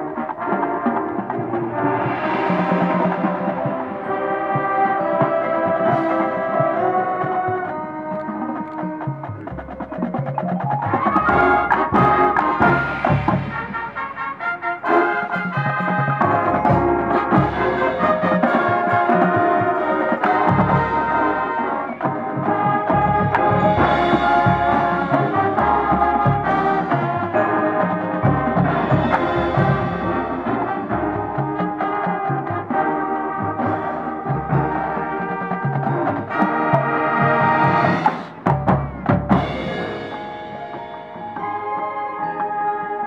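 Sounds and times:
drum and timpani hits: 0.0s - 8.3s, 8.9s - 41.7s
marching band brass chords: 0.0s - 43.0s.

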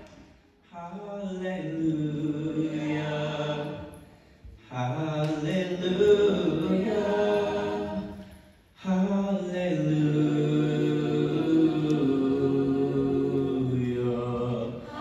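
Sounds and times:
choir singing sustained chords: 9.4s - 15.0s.

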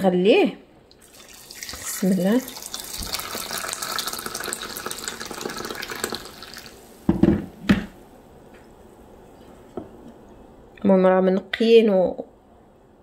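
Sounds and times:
water pouring into saucepan: 1.0s - 7.1s.

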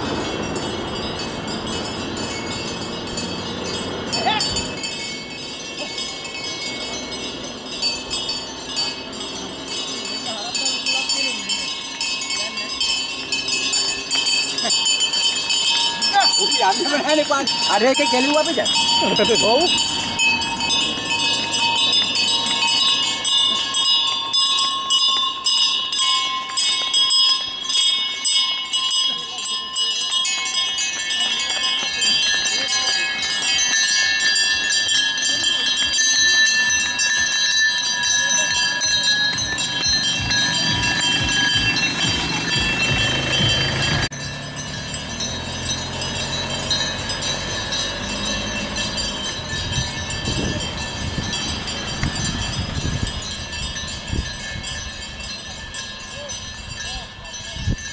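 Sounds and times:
cattle bells clanking: 0.0s - 57.9s
minivan engine humming: 0.0s - 57.9s.

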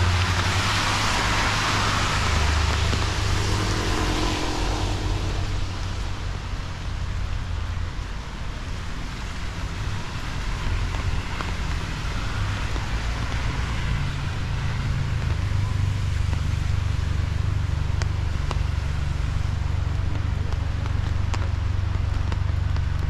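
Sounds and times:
rain hiss: 0.0s - 23.0s
road traffic rumble: 0.0s - 23.0s.

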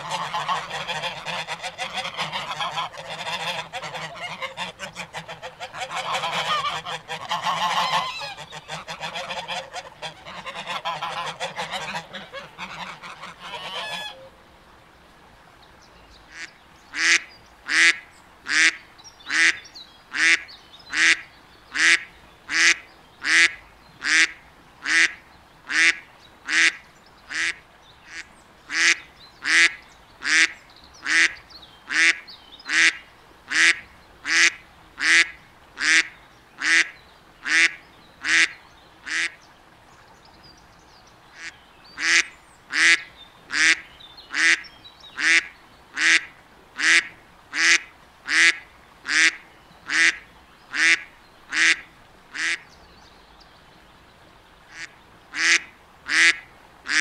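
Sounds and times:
flock of waterfowl calling: 0.0s - 14.4s, 16.3s - 25.1s, 25.7s - 39.4s, 41.3s - 52.6s, 54.7s - 57.0s.

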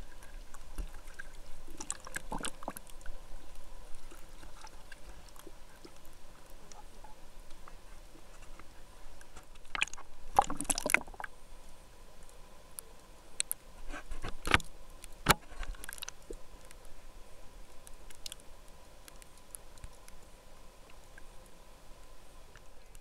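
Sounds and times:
underwater splashing and bubbling: 0.0s - 11.5s
faint steady hum: 0.0s - 23.0s.

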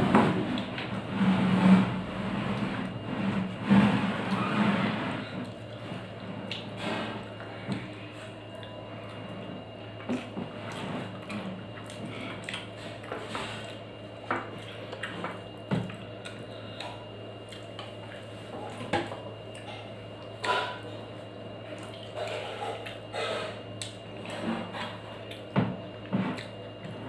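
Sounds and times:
person chewing: 11.2s - 12.8s.

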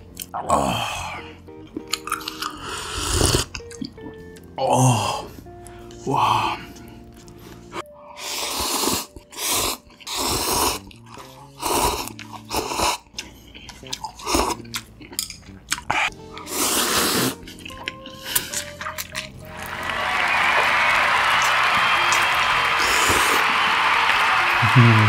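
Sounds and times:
soft background music: 0.0s - 25.0s
noodles being slurped: 8.2s - 15.2s, 15.8s - 19.5s.

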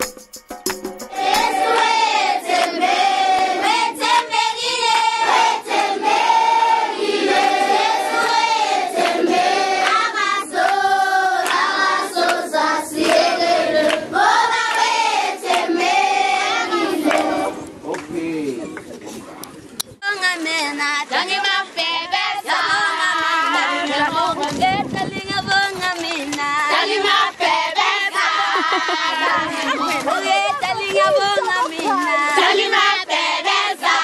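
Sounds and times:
children's choir singing: 1.1s - 17.7s, 21.1s - 24.7s, 26.4s - 34.0s.

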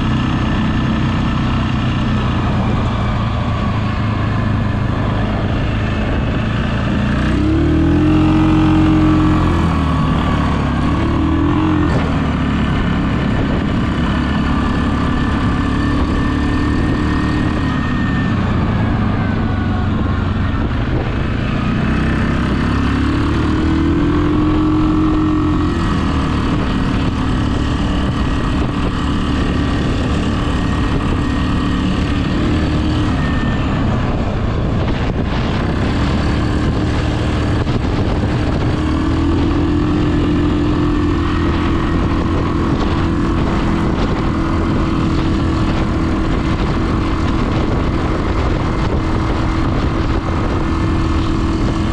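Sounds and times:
atv engine revving: 0.0s - 51.9s.

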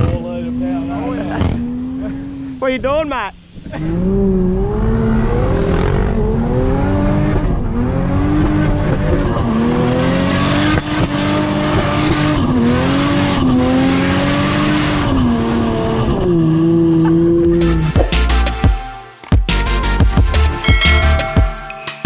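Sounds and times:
engine revving: 0.0s - 2.8s, 3.6s - 18.4s.

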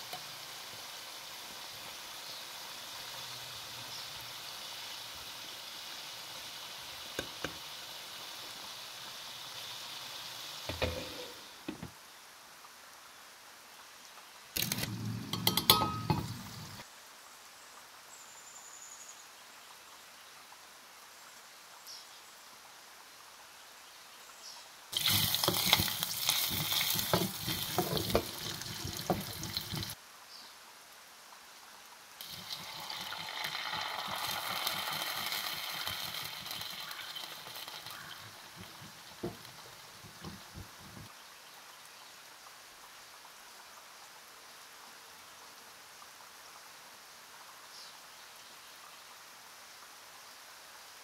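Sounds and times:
butter sizzling in a pot: 0.0s - 11.9s, 14.6s - 16.8s, 24.9s - 30.0s, 32.2s - 41.1s
sauce sizzling: 0.0s - 11.9s, 14.6s - 16.8s, 24.9s - 30.0s, 32.2s - 41.1s.

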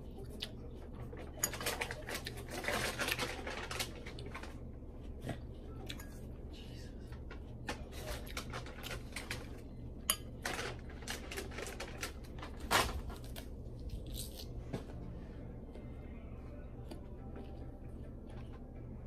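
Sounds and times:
low steady hum: 0.0s - 19.0s
crunchy chewing: 11.2s - 14.7s.

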